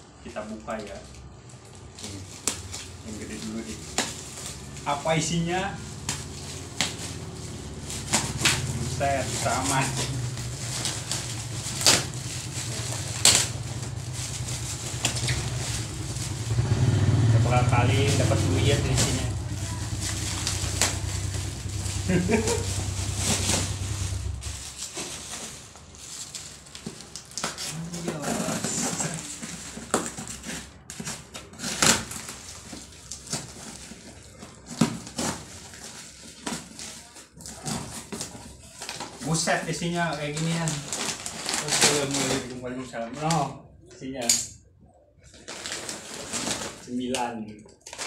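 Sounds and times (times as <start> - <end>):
plastic crinkling and scraping: 0.4 - 43.6, 45.2 - 48.0
plastic ripping: 0.6 - 43.5, 45.2 - 48.0
low hum: 7.0 - 24.8.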